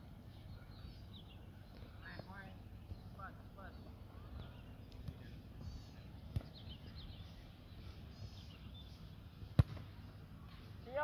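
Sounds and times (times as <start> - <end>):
faint birds chirping: 0.0 - 11.0
football kicked thud: 6.3 - 6.6, 9.5 - 9.9.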